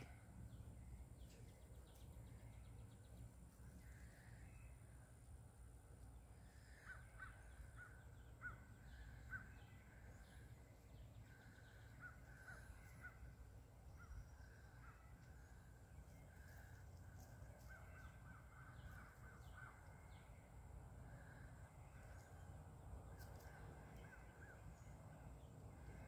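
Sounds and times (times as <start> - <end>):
low background rumble: 0.0 - 26.0
bird calls: 6.1 - 20.5.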